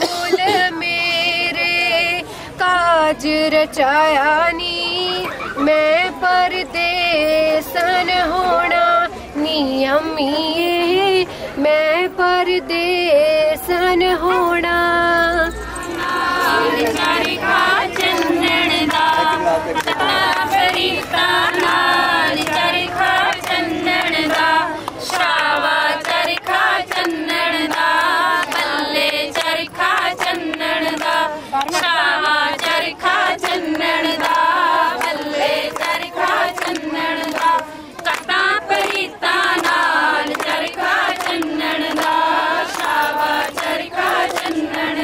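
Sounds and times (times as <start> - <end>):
women singing folk song: 0.0 - 45.0
hand claps: 16.8 - 45.0.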